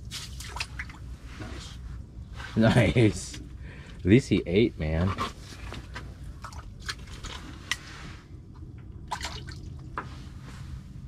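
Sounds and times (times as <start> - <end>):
low steady hum: 0.0 - 11.0
water drips: 9.1 - 10.0.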